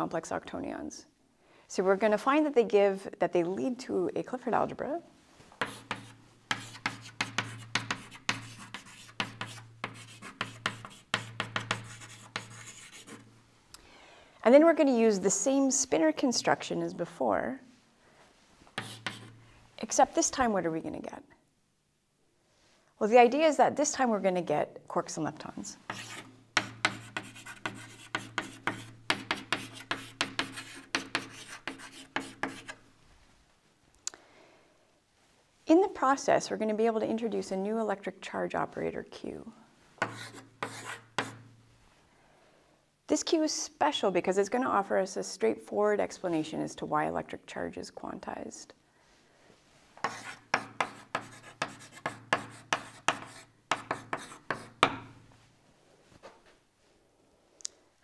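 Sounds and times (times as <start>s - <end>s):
chalk scratching on blackboard: 5.6s - 13.3s, 18.7s - 19.4s, 25.8s - 32.8s, 40.0s - 41.4s, 50.0s - 55.1s.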